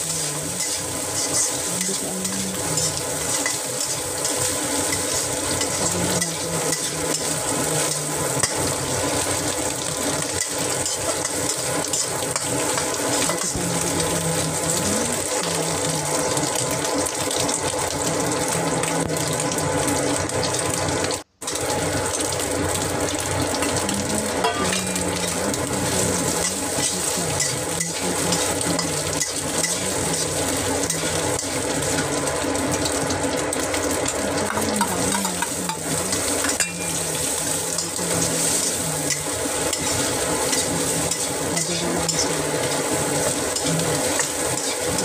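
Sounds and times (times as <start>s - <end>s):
spatula scraping a wok: 0.0s - 13.6s, 24.4s - 32.2s, 34.4s - 45.0s
food sizzling in a wok: 0.0s - 45.0s.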